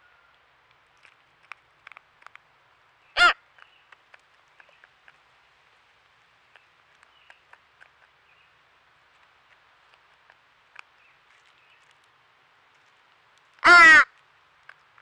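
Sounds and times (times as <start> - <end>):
crow cawing: 3.2 - 3.4, 13.6 - 14.1
beaks clicking on wooden log: 6.5 - 8.2.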